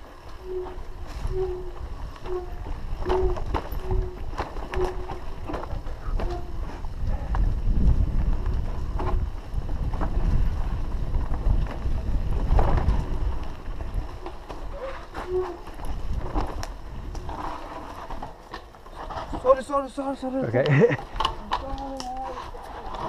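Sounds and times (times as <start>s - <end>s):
wind buffeting microphone: 0.0s - 18.2s
bike rattling over bumps: 0.0s - 23.0s.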